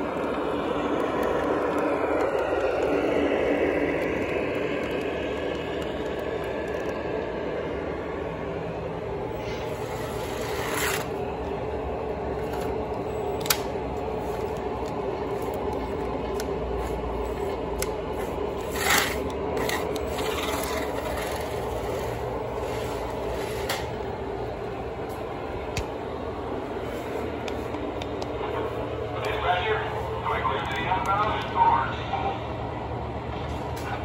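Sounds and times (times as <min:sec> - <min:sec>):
small electric motors: 0:09.4 - 0:11.2, 0:17.8 - 0:23.1.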